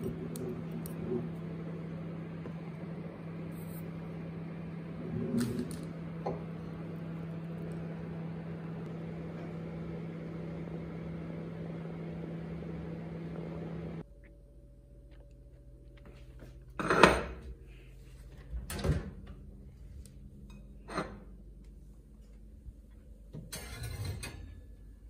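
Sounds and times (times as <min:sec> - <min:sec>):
microwave oven humming: 0:00.0 - 0:25.0.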